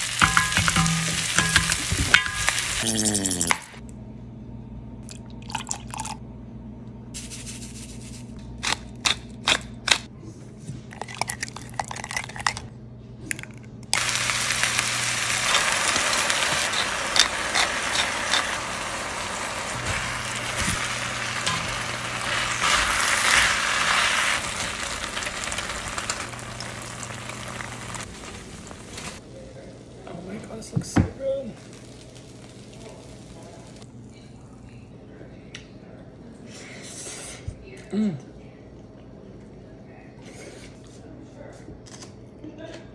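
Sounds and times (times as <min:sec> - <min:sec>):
food sizzling in a pan: 0:00.0 - 0:03.8, 0:14.0 - 0:29.2, 0:31.5 - 0:33.8.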